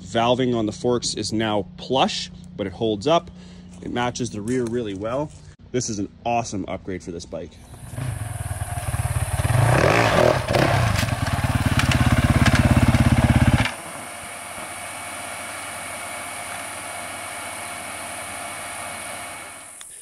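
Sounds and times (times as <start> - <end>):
faint steady hum: 0.0 - 9.4
motorcycle engine revving: 7.6 - 19.8.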